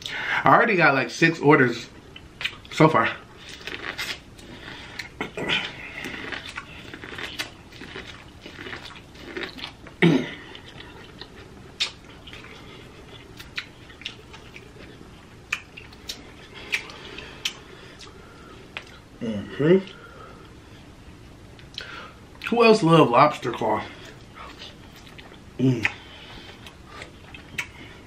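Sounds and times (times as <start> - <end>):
person chewing corn on the cob: 3.4 - 19.0, 24.0 - 28.0
wet mouth clicks: 11.2 - 12.4, 15.5 - 18.1, 26.6 - 27.8.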